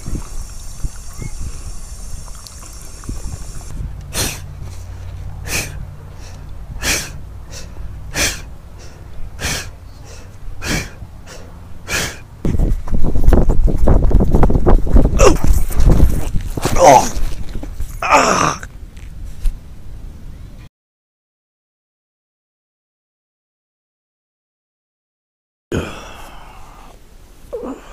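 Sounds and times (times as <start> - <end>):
rustling noise: 3.1 - 5.4, 12.4 - 18.0, 18.7 - 19.9
person breathing heavily: 3.5 - 12.3, 25.7 - 27.9.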